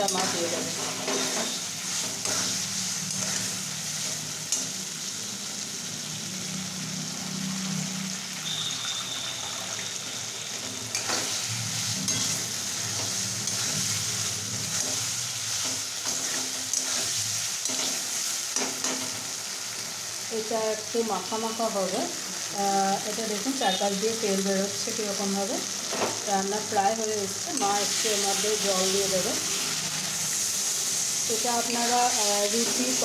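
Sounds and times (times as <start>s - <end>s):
steel spatula scraping pan: 0.0s - 3.5s, 10.9s - 19.2s
food sizzling in a wok: 0.0s - 33.0s.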